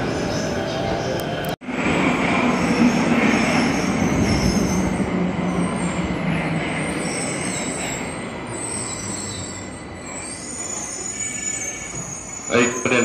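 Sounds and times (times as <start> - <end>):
subway train rumbling: 0.0 - 13.0
faint wheel squeal: 6.9 - 13.0.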